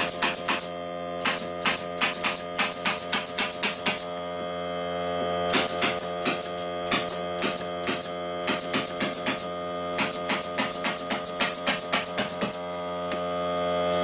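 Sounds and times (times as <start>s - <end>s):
fast regular sharp knocks: 0.0s - 4.1s, 5.5s - 12.6s
air compressor motor humming: 0.0s - 14.0s.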